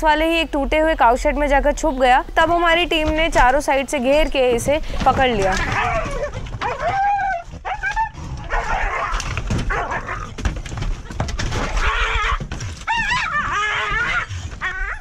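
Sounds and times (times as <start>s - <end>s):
dog barking and yelping: 5.6s - 10.3s, 11.5s - 15.0s.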